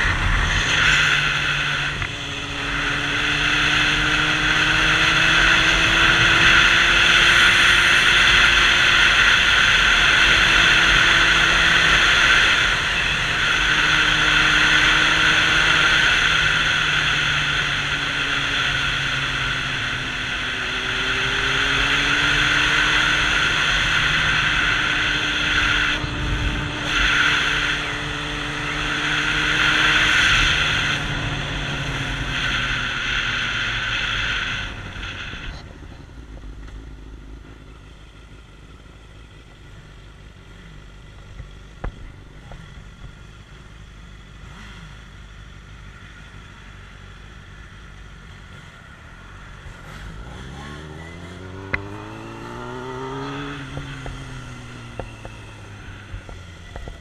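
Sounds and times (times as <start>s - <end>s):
wind rushing on microphone: 0.0s - 4.5s
motorcycle engine running: 0.0s - 57.0s.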